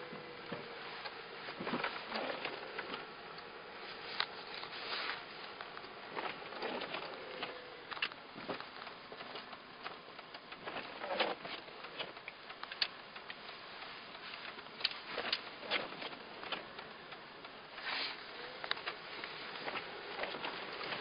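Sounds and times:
faint hiss: 16.2s - 21.0s.

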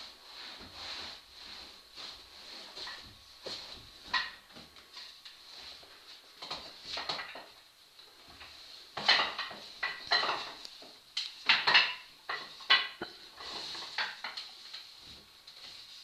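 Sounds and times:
wooden rungs knocking: 11.4s - 13.2s.

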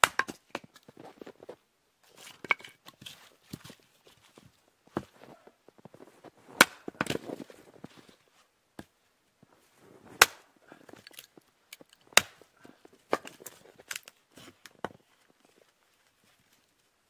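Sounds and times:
hatchet chopping firewood: 0.0s - 0.7s, 6.6s - 7.2s, 10.2s - 12.5s, 13.1s - 14.1s.

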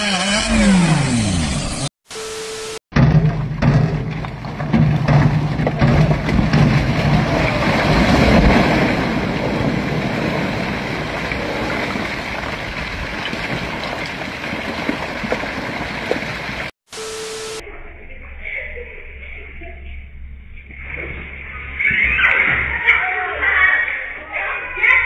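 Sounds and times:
low rumble of collapsing rock: 3.0s - 16.7s.

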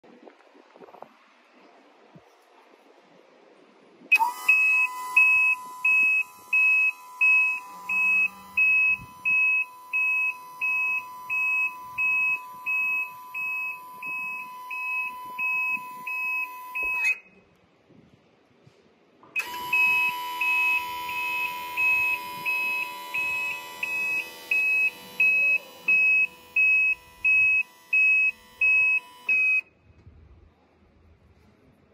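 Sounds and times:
warning buzzer beeping: 4.1s - 17.3s, 19.4s - 29.6s.

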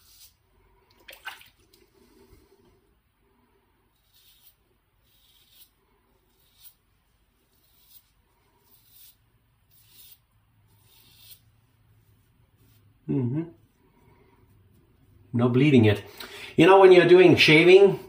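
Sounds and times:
razor scraping stubble: 3.9s - 12.9s.

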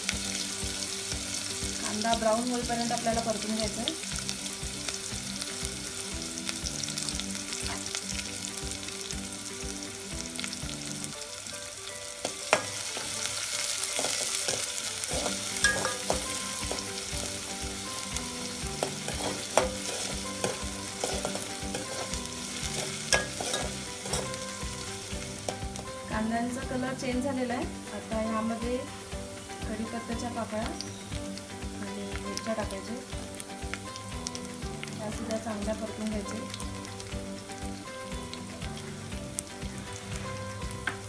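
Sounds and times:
onions sizzling in hot oil: 0.0s - 41.0s
steel spoon scraping a pot: 14.0s - 16.8s, 18.8s - 24.5s.

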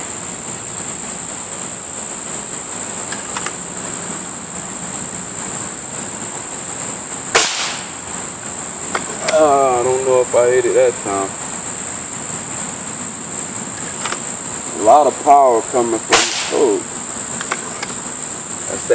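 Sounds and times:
insects droning: 0.0s - 18.9s
air rifle shot: 7.3s - 8.0s, 16.1s - 16.8s.

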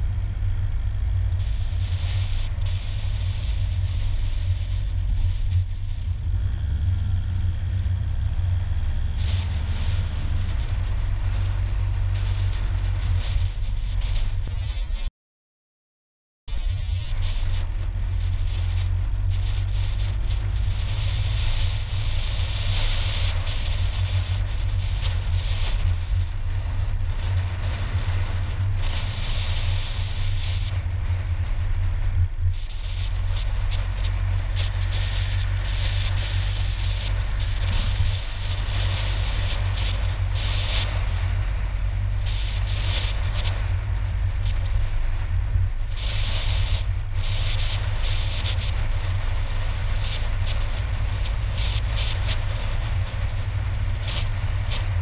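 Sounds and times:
car engine and tyre rumble: 0.0s - 15.1s, 16.5s - 55.0s
wind noise: 0.0s - 15.1s, 16.5s - 55.0s.

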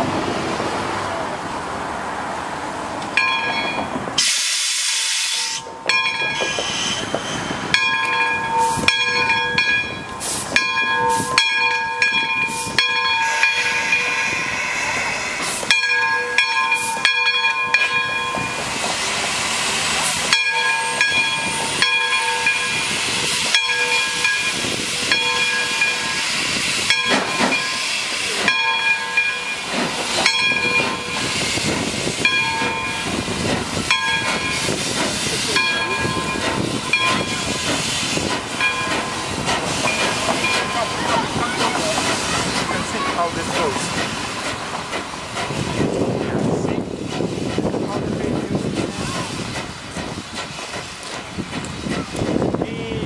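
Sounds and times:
locomotive bell ringing: 3.1s - 4.0s, 5.3s - 15.0s, 15.6s - 18.8s, 20.1s - 44.5s
steam locomotive hissing: 4.0s - 53.0s.

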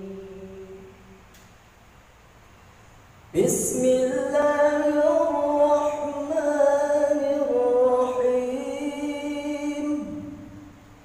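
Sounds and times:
man reciting melodically: 3.3s - 10.7s.

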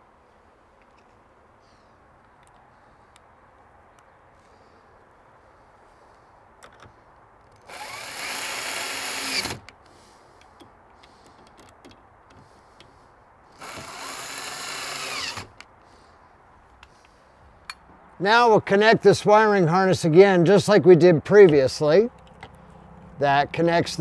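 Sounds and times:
faint small clicks: 2.2s - 3.3s
cordless drill driving screws: 7.6s - 9.7s, 13.6s - 15.7s.

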